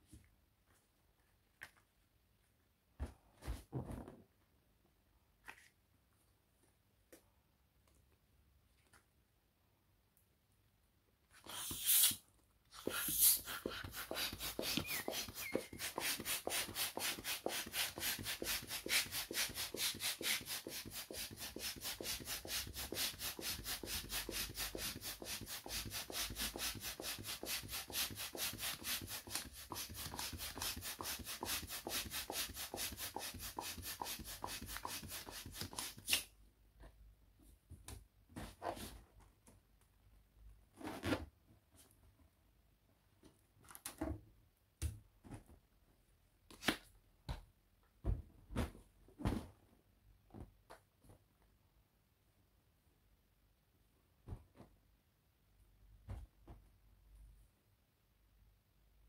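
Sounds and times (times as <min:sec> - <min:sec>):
balloon pump rush of air: 0:11.4 - 0:36.3
rubbery handling of balloon: 0:12.8 - 0:36.2, 0:40.7 - 0:41.9.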